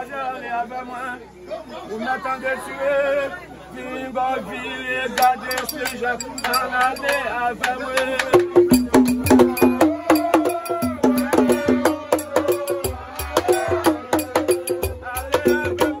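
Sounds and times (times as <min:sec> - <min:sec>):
men singing: 0:03.9 - 0:16.0
hand drums: 0:05.2 - 0:07.2, 0:08.0 - 0:16.0
sharp clicking beat: 0:05.2 - 0:16.0.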